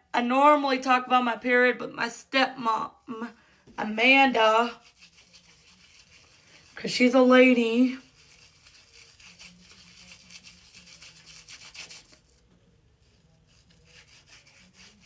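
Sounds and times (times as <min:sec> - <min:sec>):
hands rubbing together: 0:04.8 - 0:06.4, 0:08.0 - 0:12.3, 0:13.1 - 0:15.0.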